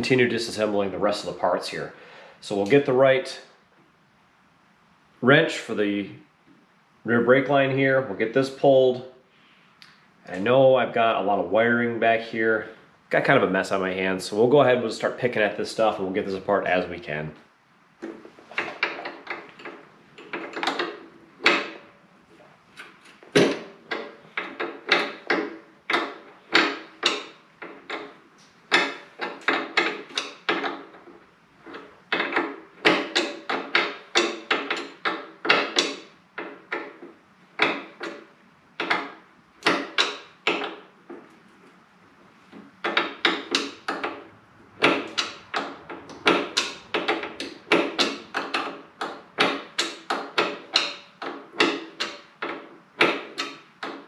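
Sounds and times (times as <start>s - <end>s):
wrench clicking: 22.8s - 31.0s, 31.6s - 37.0s, 38.8s - 40.8s, 42.8s - 54.0s.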